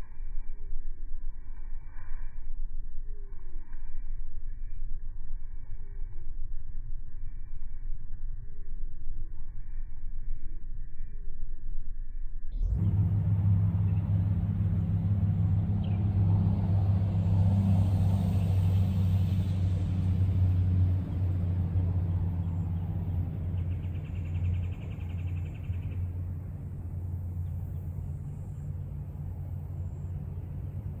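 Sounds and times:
low motor rumble: 0.0s - 31.0s.

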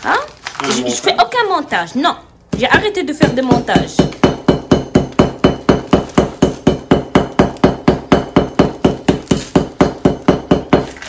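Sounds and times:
knife chopping sugar loaf: 2.5s - 11.0s.

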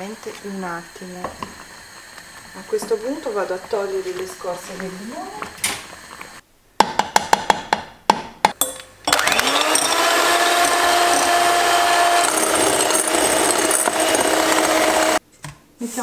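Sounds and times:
electric hand mixer whirring: 0.0s - 6.4s, 9.1s - 15.2s.

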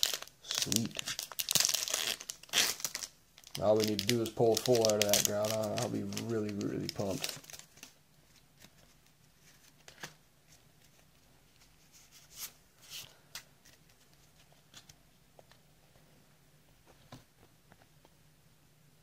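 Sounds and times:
trading cards rustling: 0.0s - 15.0s.

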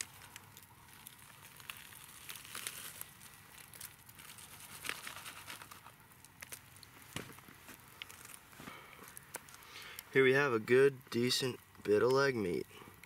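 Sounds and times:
roasted shell crackling apart: 0.0s - 10.2s.

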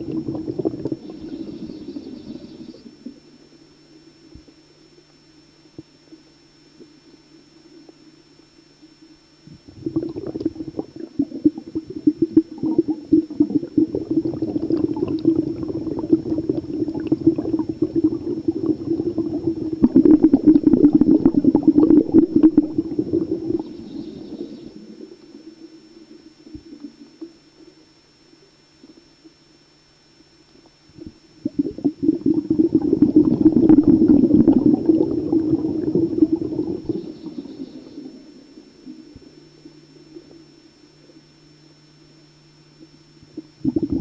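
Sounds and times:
underwater air bubbling: 0.0s - 3.4s, 9.4s - 29.1s, 30.9s - 41.4s, 42.8s - 44.0s.

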